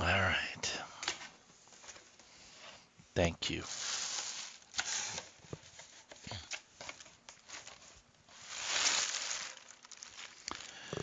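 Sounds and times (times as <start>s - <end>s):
paper packaging rustling: 3.6s - 10.9s.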